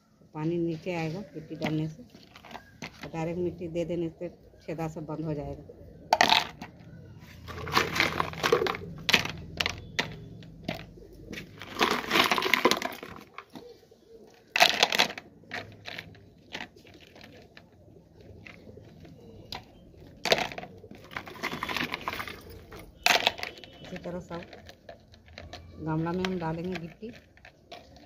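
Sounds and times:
stone chips rattling into plastic pots: 1.5s - 3.4s, 6.1s - 6.8s, 7.4s - 13.6s, 14.4s - 28.0s.

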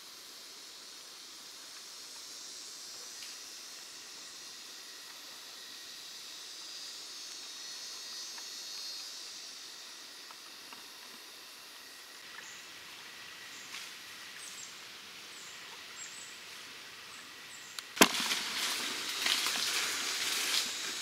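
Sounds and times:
rustling and crackling leaves: 0.0s - 21.0s
sharp pop: 18.0s - 18.5s.

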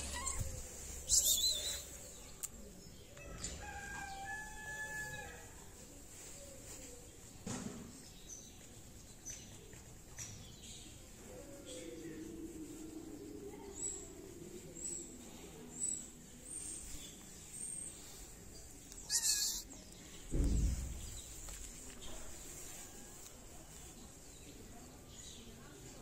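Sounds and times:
cats meowing: 0.0s - 1.5s, 18.9s - 19.8s.

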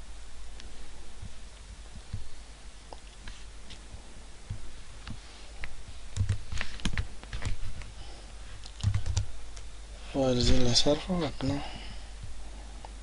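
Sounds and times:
computer keyboard keystrokes: 6.1s - 7.9s, 8.6s - 9.7s.

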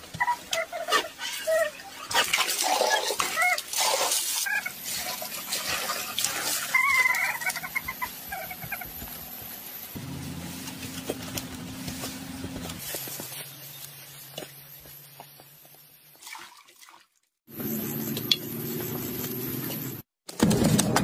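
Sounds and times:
chickens clucking: 5.7s - 9.2s.

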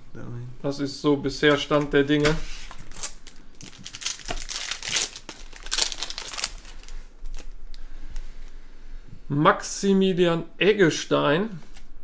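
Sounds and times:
wrapper crinkling and tearing: 2.7s - 7.6s.

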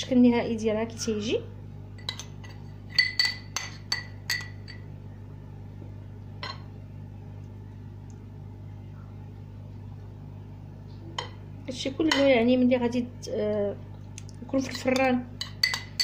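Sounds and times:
steady low hum: 0.0s - 16.0s
spoon clinking against bowl: 2.9s - 4.9s, 14.7s - 16.0s.

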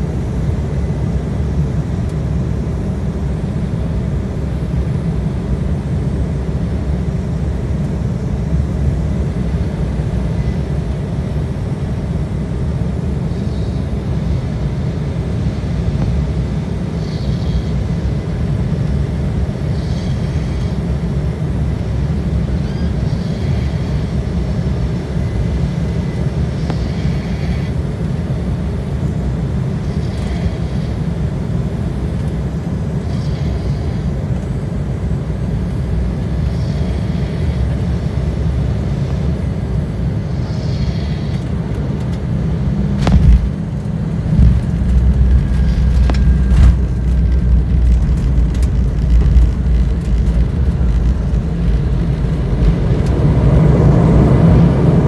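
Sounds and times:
airplane cabin engine rumble: 0.0s - 55.0s
wheels rolling on runway: 44.2s - 55.0s.

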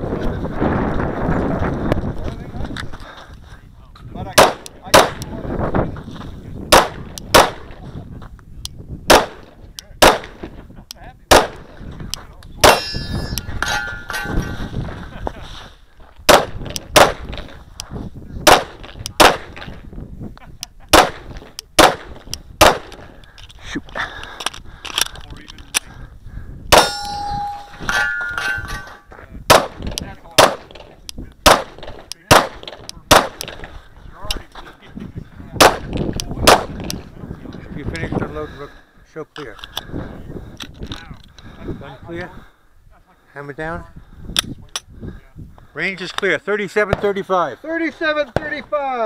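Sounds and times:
pistol shots with echo: 4.4s - 5.3s, 6.7s - 7.8s, 9.1s - 10.4s, 11.3s - 11.7s, 12.6s - 14.3s, 16.3s - 17.4s, 18.4s - 19.7s, 20.9s - 23.0s, 26.7s - 28.8s, 29.5s - 30.8s, 31.4s - 33.6s, 35.6s - 36.8s
steel targets clanging: 12.6s - 14.8s, 26.7s - 29.1s.

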